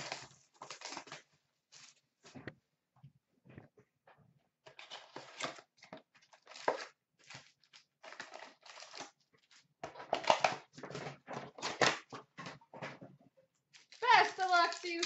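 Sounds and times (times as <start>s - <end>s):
cardboard tearing and crinkling: 0.0s - 2.0s, 4.7s - 12.1s, 13.8s - 15.0s.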